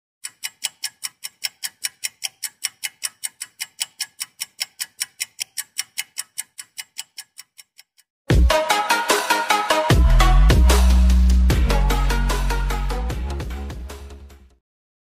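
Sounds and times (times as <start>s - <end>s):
rapid sharp ticking: 0.2s - 8.0s.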